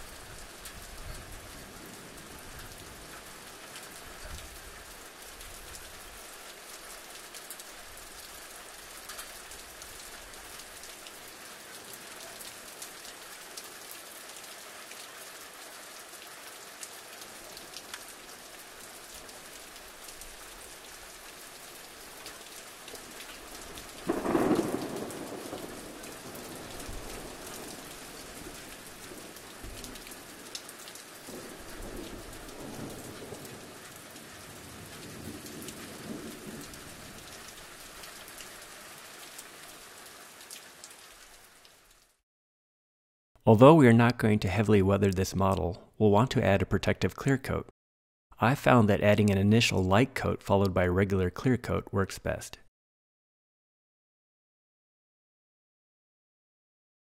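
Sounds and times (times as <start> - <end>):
steady rain: 0.0 - 42.2
thunder rolling: 24.1 - 27.4.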